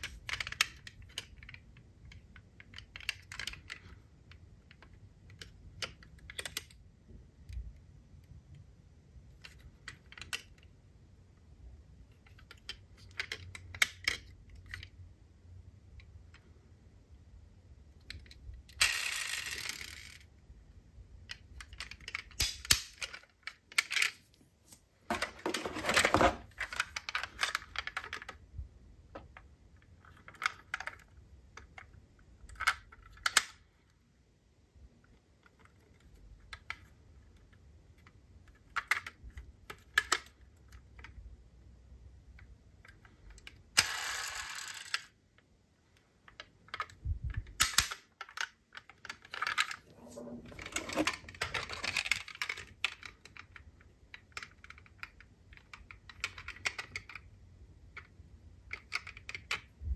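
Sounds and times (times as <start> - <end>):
packaging rustling: 25.0 - 26.8.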